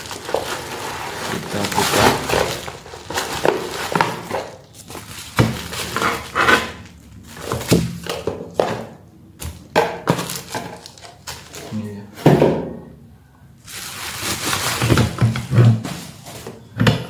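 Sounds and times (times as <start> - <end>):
bubble wrap crinkling: 0.0 - 8.2, 10.1 - 11.8, 13.6 - 16.6.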